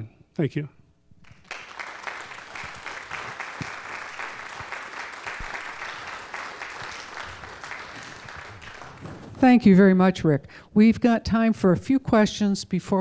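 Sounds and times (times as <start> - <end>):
audience applauding: 1.2 - 9.3.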